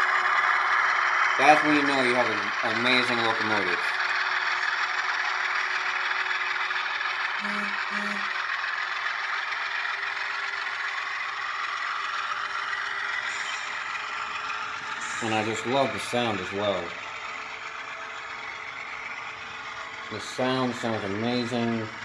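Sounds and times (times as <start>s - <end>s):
model train running noise: 0.0s - 22.0s
simulated diesel engine sound: 0.0s - 22.0s
short low tones: 7.4s - 8.4s.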